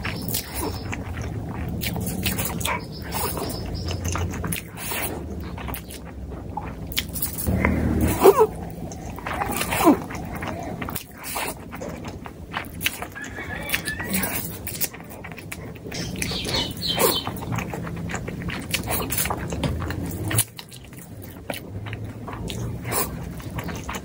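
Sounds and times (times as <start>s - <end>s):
slurping and chewing noodles: 0.0s - 24.0s
squeaky slurp: 12.8s - 15.0s.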